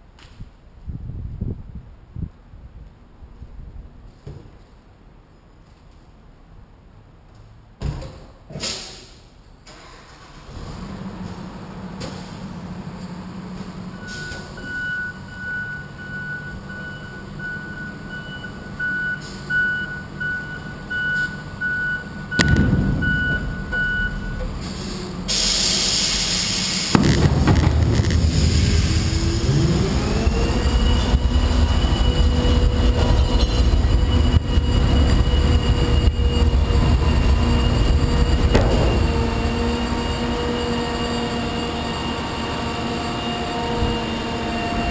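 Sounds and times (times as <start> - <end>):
diesel engine: 8.6 - 44.9
truck backup alarm beeping: 13.9 - 26.9, 30.1 - 44.9
hydraulic whine: 13.9 - 44.9
air hiss: 24.6 - 27.0.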